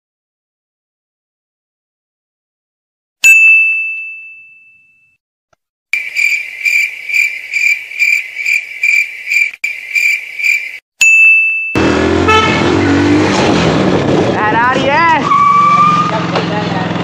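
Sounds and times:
bright ding: 3.2 - 5.1, 11.0 - 11.8
high pulsing chirping: 6.0 - 10.8.

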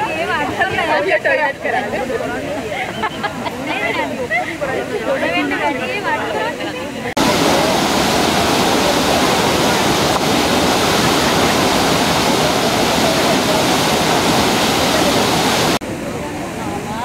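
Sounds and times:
white water gushing: 7.1 - 17.0.

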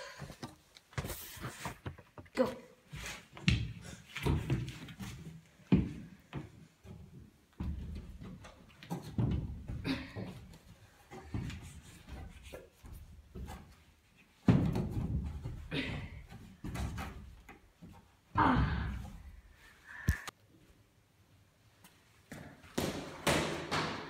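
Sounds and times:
scuffing of climbing: 2.8 - 19.4
thumps on wooden wall panels: 14.4 - 19.1.

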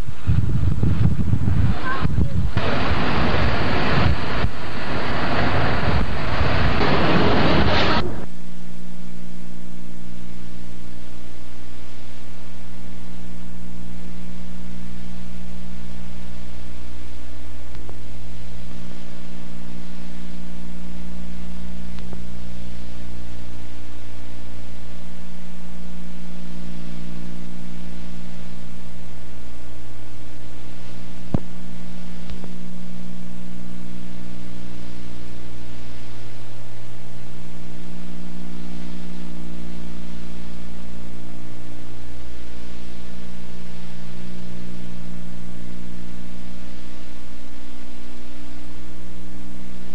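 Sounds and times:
loud even hiss: 0.0 - 9.5
constant hiss: 0.0 - 49.9
low steady hum: 0.0 - 49.9
car driving at speed: 2.6 - 8.3
faint click: 17.7 - 18.0, 21.9 - 22.2, 32.2 - 32.6.

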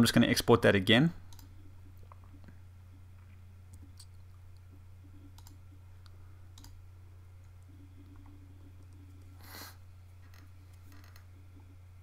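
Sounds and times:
steady low hum: 0.0 - 12.0
computer mouse clicks: 1.3 - 1.5, 5.3 - 6.8.

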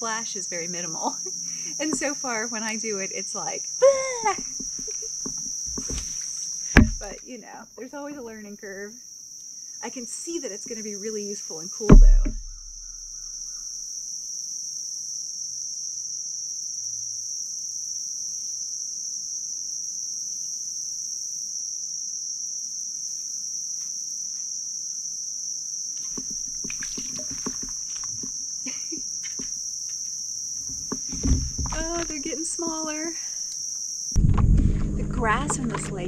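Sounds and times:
high-pitched insect chorus: 0.0 - 36.0
light clicks and knocks: 30.6 - 32.3.

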